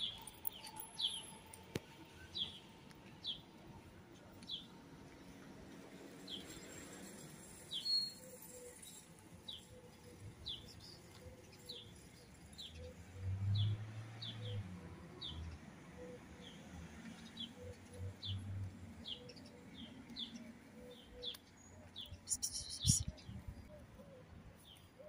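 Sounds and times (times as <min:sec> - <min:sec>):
small bird chirping: 0:21.0 - 0:23.3.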